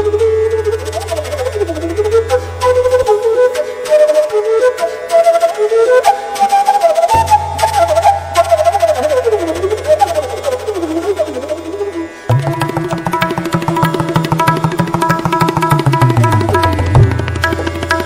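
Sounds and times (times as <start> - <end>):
wavering gliding melody: 0.0 - 18.0
hand drum rhythm: 12.3 - 18.0.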